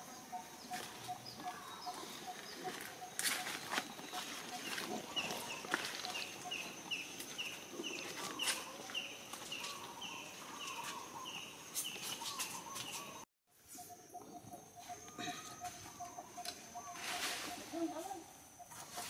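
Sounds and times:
lower clucking bird calls: 13.8 - 19.0.

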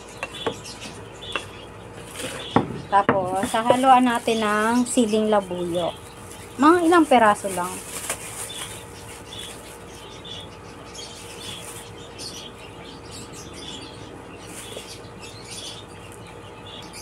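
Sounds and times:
plastic bag rustling: 2.0 - 10.1, 11.1 - 12.3, 14.4 - 15.0.

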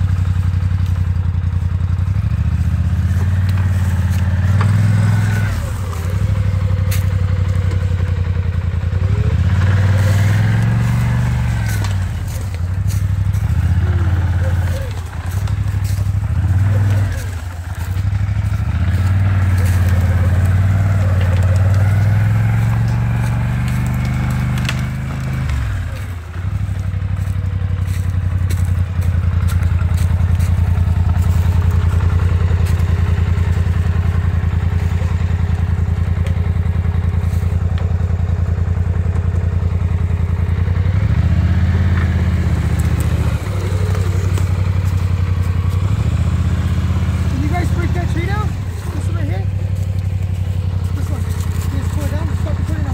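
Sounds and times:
quad bike engine revving: 0.0 - 52.9.

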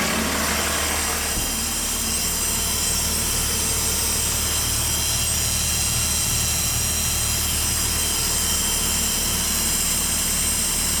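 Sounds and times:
diesel bus engine idling: 0.0 - 8.0.

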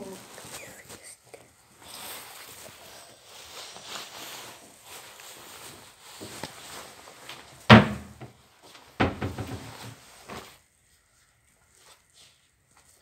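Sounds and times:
loud thumps: 7.7 - 8.4, 9.0 - 9.8.

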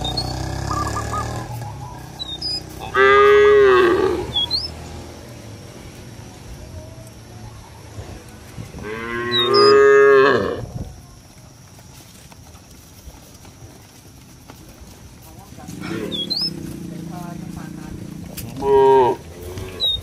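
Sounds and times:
cattle mooing: 0.0 - 1.6, 2.2 - 4.7, 8.8 - 10.7, 15.7 - 20.0.

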